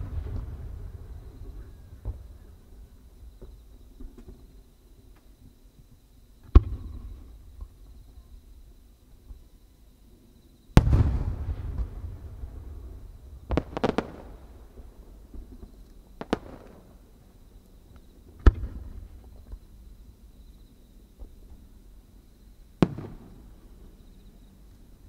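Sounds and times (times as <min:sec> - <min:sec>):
firework booms: 0:00.0 - 0:04.6, 0:06.4 - 0:08.0, 0:10.7 - 0:17.1, 0:18.4 - 0:19.8, 0:22.8 - 0:24.0
firework sharp cracks: 0:06.4 - 0:07.7, 0:10.8 - 0:17.1, 0:22.8 - 0:23.5.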